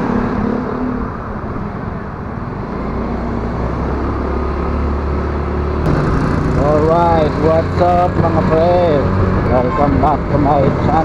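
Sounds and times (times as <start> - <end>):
motor scooter engine: 5.7 - 9.4.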